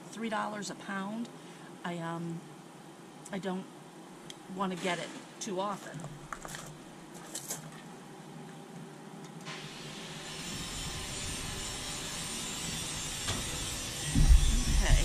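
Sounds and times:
power tool running: 9.5s - 15.0s.

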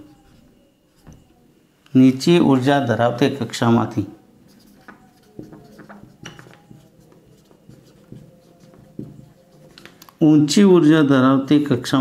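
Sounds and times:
marker pen scratching on whiteboard: 4.4s - 10.0s.

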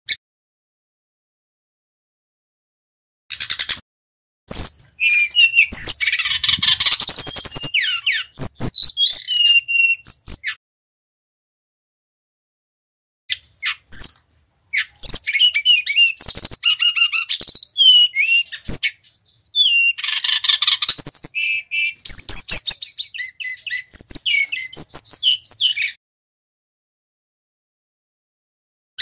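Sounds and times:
bird singing whistles and rattles: 4.5s - 10.6s, 13.3s - 26.0s.

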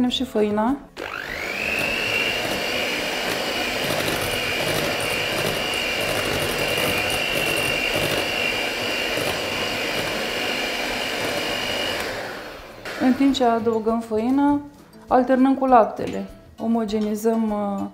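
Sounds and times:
beaters churning batter: 1.0s - 13.6s
electric mixer motor whine: 1.0s - 13.6s.

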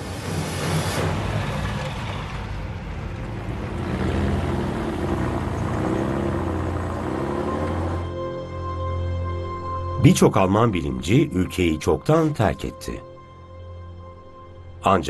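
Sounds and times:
vehicle engines driving past: 0.0s - 8.6s.

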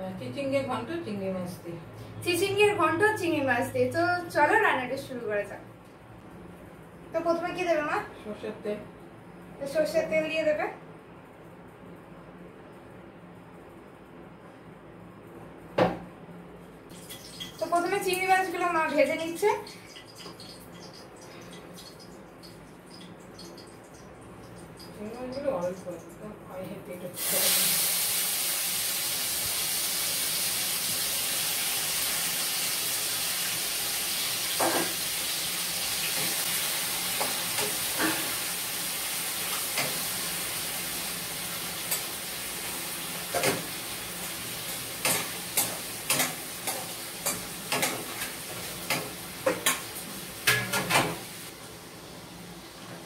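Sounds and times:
prawns sizzling in a frying pan: 27.1s - 52.9s.

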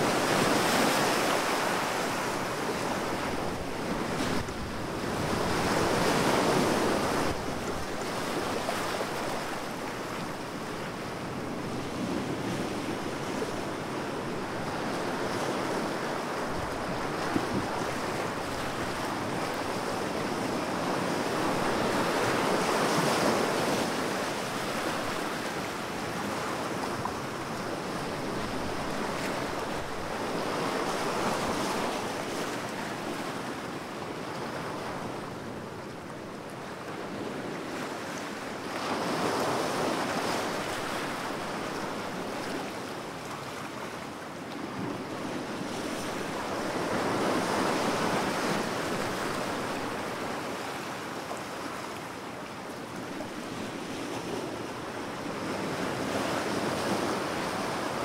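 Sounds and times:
ocean waves washing: 0.0s - 58.0s.

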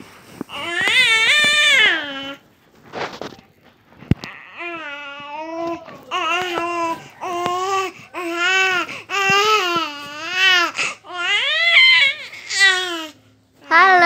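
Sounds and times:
baby breathing: 6.1s - 11.1s.

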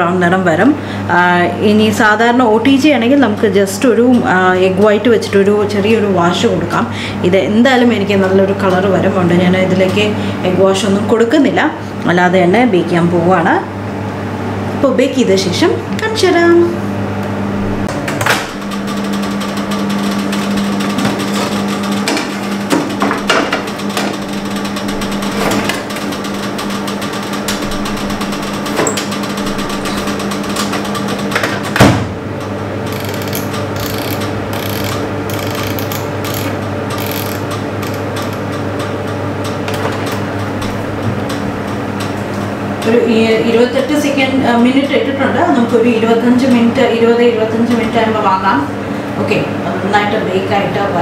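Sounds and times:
microwave oven humming: 0.0s - 51.0s
oven door shutting: 27.4s - 38.9s.

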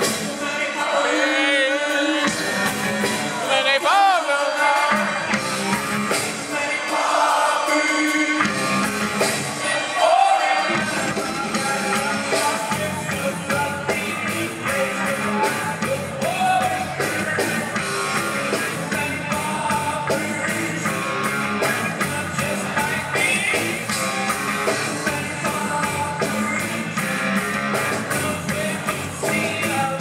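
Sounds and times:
man singing: 0.0s - 5.4s, 6.0s - 30.0s
drums: 0.0s - 30.0s
live rock band: 0.0s - 30.0s
electric bass: 2.3s - 3.4s, 5.0s - 6.5s, 8.4s - 9.5s, 10.8s - 30.0s.

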